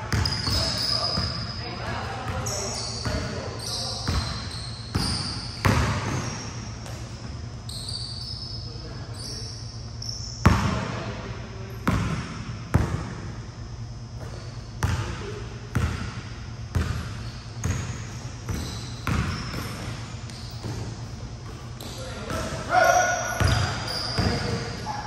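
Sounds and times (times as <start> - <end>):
steady low hum: 0.0 - 25.0
basketball bouncing on court: 0.1 - 3.4, 4.0 - 7.4, 10.4 - 11.0, 11.8 - 13.4, 14.2 - 22.7, 23.3 - 24.8.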